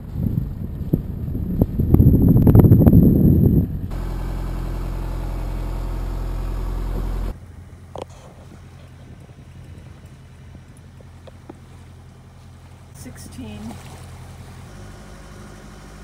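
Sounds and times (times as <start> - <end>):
loud rough rumble: 0.0 - 16.0
electric coffee grinder humming: 3.9 - 7.3.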